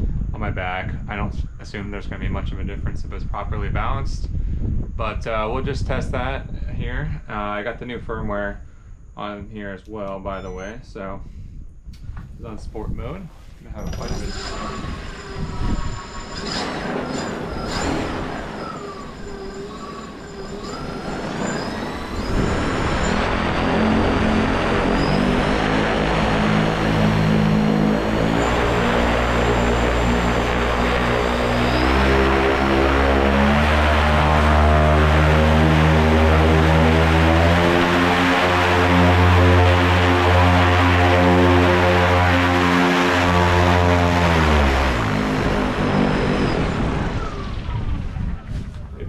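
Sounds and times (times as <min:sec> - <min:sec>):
propeller drone: 0:13.7 - 0:49.0
electric motor whine: 0:13.9 - 0:47.9.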